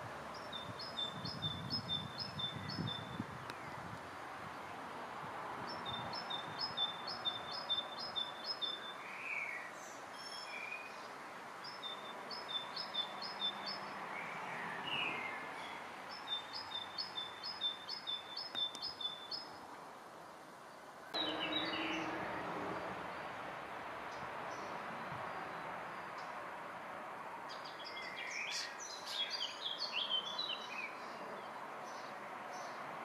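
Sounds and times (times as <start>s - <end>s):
songbird singing: 0.0s - 33.0s.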